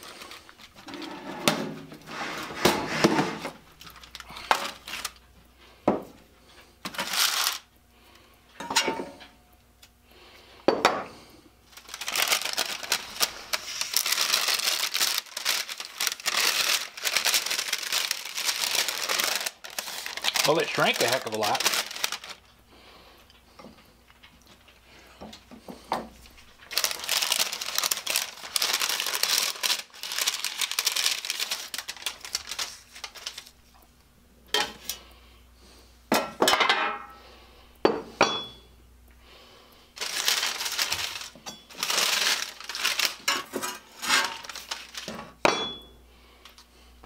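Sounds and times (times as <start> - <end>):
plastic bags crinkling: 0.0 - 1.0, 3.4 - 5.3, 6.9 - 7.7, 11.6 - 22.6, 26.2 - 33.8, 40.0 - 45.4.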